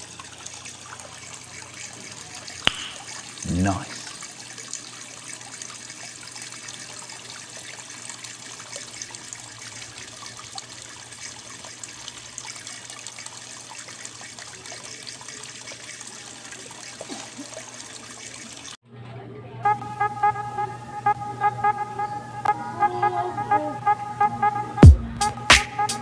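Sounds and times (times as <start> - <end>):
water trickling into pond: 0.0 - 18.8.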